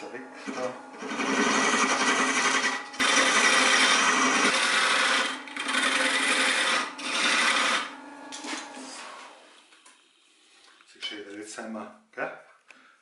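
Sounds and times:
lathe humming: 0:00.1 - 0:09.5.

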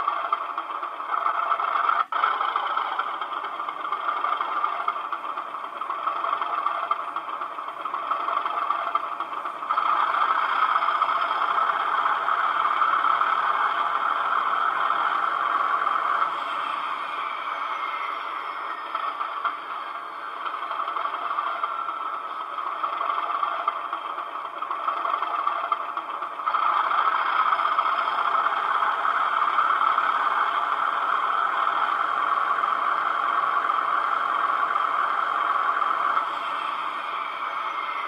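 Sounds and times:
diesel engine through small speaker: 0:00.0 - 0:38.0.

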